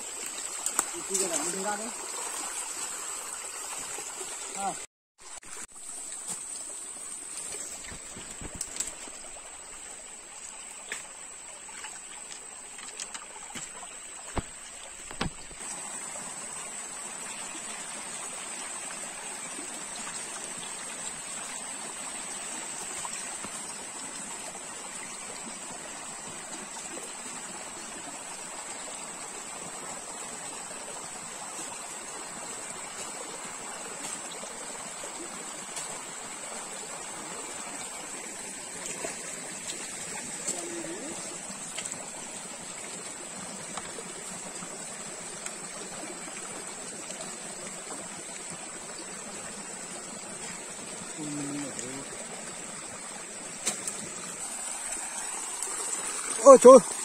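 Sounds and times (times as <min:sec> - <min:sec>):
stream rushing over stones: 0:00.0 - 0:57.0
sharp knocks: 0:14.3 - 0:15.6.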